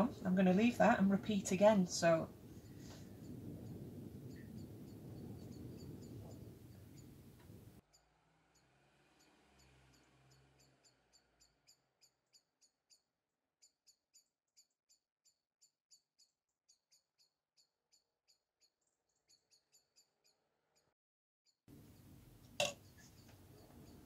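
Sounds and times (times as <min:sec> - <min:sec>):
faint high-pitched chirps: 0:02.4 - 0:20.9.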